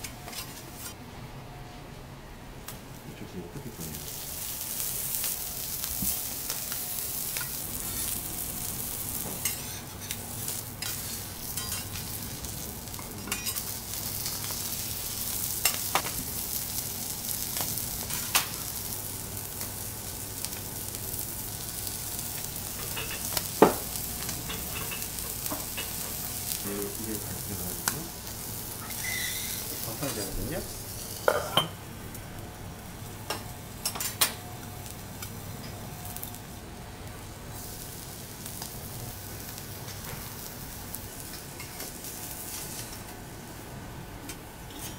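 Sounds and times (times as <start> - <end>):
food sizzling on a griddle: 3.6 - 43.8.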